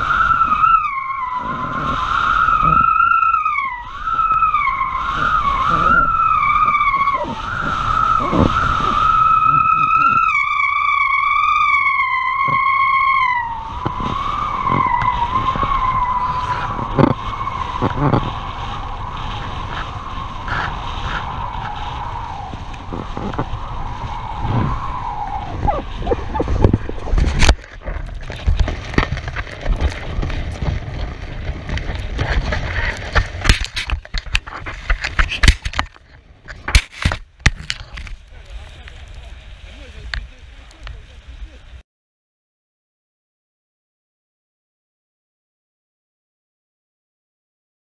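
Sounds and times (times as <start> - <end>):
wind buffeting microphone: 0.0 - 41.8
sharp knocks and scrapes: 26.1 - 38.2.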